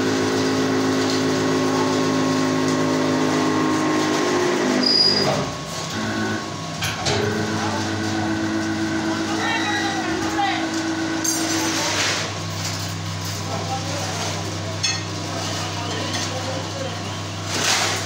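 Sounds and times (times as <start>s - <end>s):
hydraulic pump motor humming: 0.0s - 12.5s.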